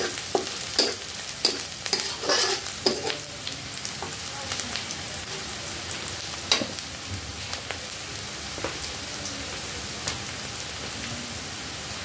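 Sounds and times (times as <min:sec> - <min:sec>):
metal spatula scraping a wok: 0:00.0 - 0:03.2
food sizzling in a wok: 0:00.0 - 0:12.0.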